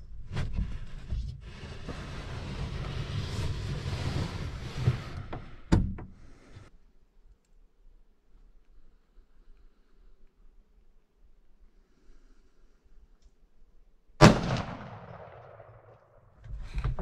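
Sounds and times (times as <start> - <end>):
sliding window scraping open: 0.3 - 6.7.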